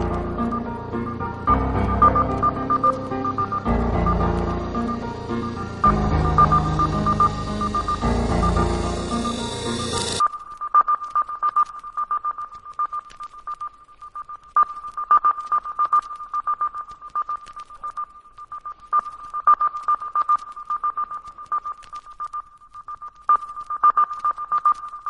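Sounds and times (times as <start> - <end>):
high-pitched pulsing electronic tone: 0.0 - 10.2
faint clicks: 10.2 - 25.0.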